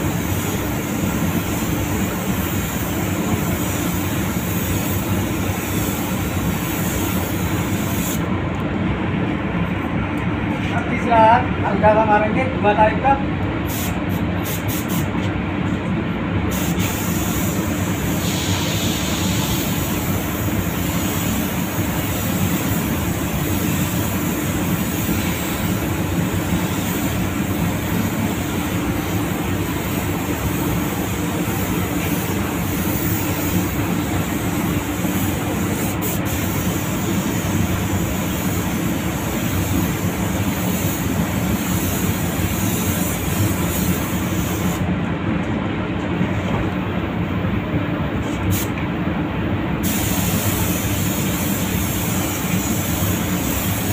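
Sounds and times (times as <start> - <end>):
paint spray gun hissing: 0.0 - 8.2, 16.5 - 44.8, 49.8 - 53.9
spray booth air rushing hum: 0.0 - 53.9.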